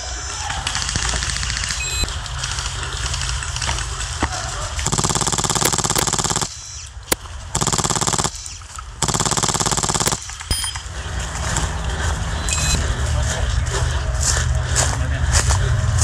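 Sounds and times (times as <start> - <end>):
airsoft machine gun bursts: 4.8 - 10.8.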